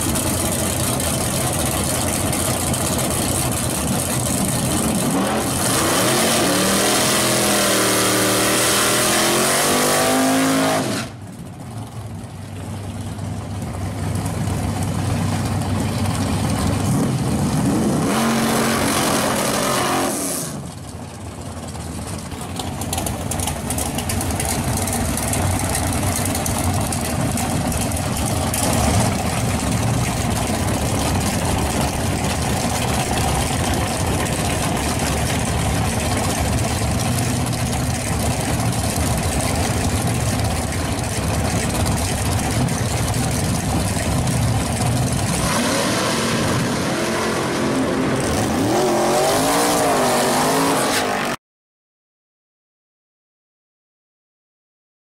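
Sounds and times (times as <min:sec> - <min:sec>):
car engine revving hard: 0:04.9 - 0:11.1, 0:17.6 - 0:20.6, 0:45.2 - 0:51.4.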